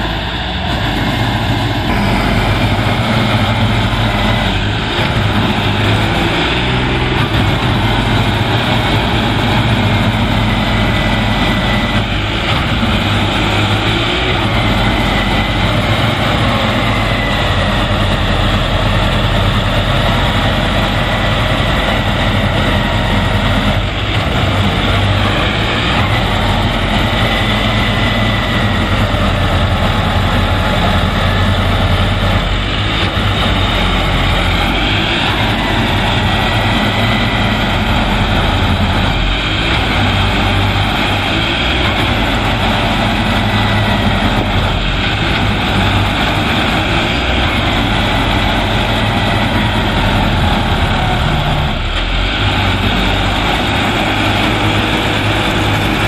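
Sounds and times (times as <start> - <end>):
combine harvester diesel engine drone: 0.0 - 56.0.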